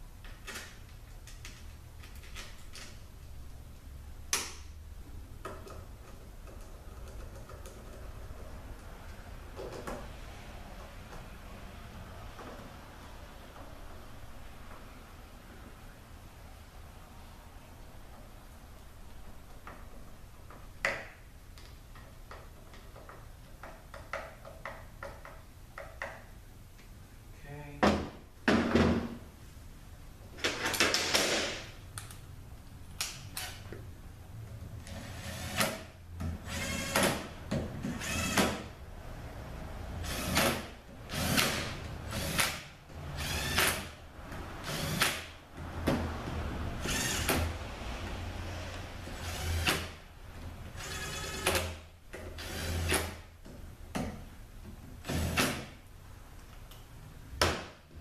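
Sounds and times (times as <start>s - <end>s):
power driver ratcheting whirr: 34.8s - 37.3s, 37.9s - 38.7s, 40.0s - 44.0s, 46.8s - 47.5s, 49.1s - 50.0s, 50.7s - 51.8s.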